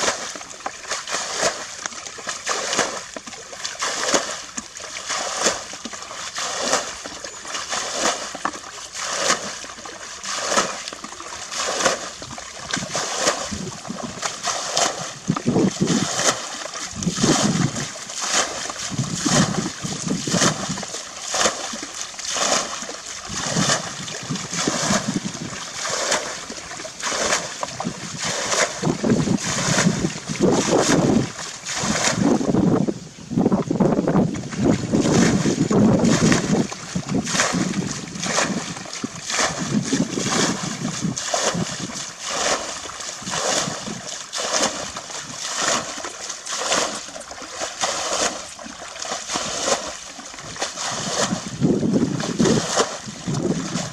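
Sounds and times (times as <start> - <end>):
bucket scooping and splashing water: 0.0 - 53.9.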